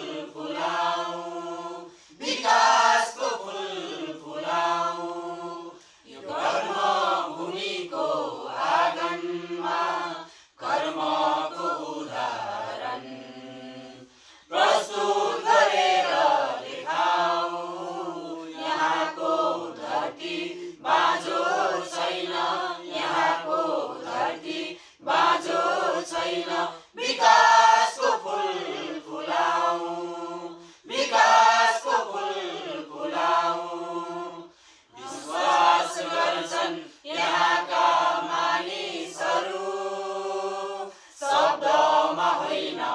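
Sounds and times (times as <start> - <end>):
group singing unaccompanied: 0.0 - 42.9.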